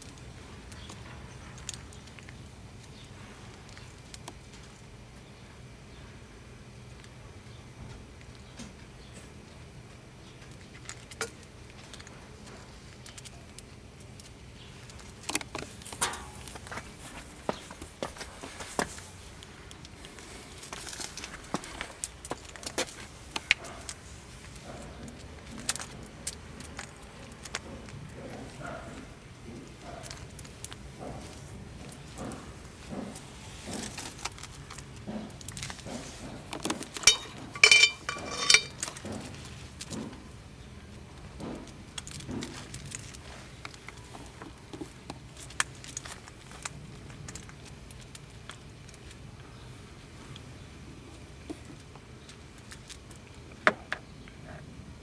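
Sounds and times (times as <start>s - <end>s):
metal chain leash jangling: 37.0s - 38.8s.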